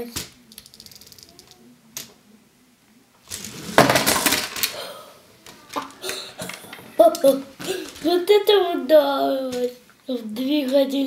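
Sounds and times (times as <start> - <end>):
plastic pieces clattering on wooden table: 3.3 - 4.8.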